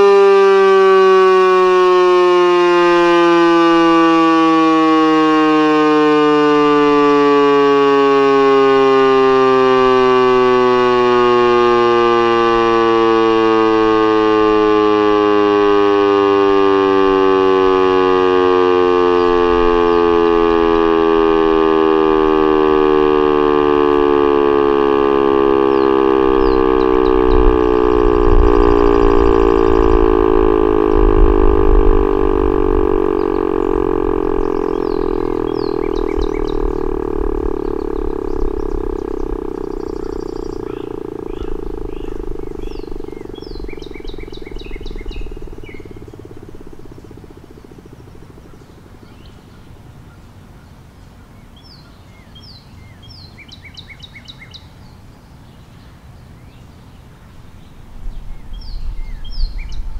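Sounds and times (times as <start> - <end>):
warning siren wailing: 0.0 - 50.6, 57.8 - 59.9.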